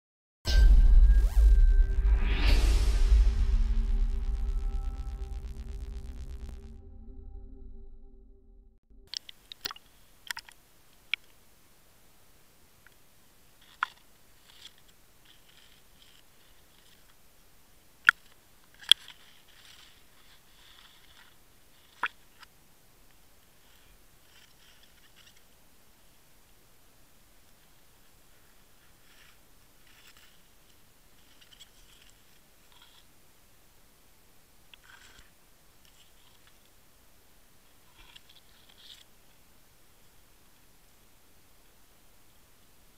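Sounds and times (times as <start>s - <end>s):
faint underwater clicks and crackles: 9.1s - 11.4s, 12.8s - 17.2s, 18.0s - 25.6s, 28.9s - 33.1s, 34.7s - 36.8s, 37.7s - 39.4s
sharp underwater clicks: 9.2s - 11.3s
faint rustling and hiss: 9.2s - 42.9s.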